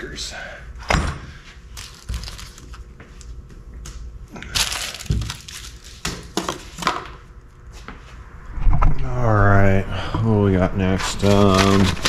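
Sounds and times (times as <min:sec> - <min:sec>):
packaging crinkling: 0:01.7 - 0:02.9, 0:04.5 - 0:06.9, 0:11.2 - 0:12.0.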